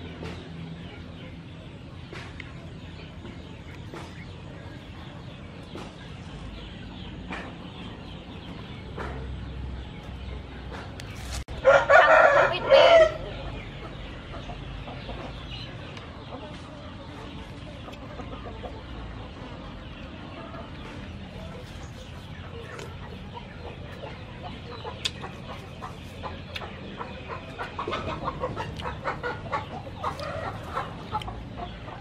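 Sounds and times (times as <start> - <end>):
rooster crowing: 11.6 - 13.3.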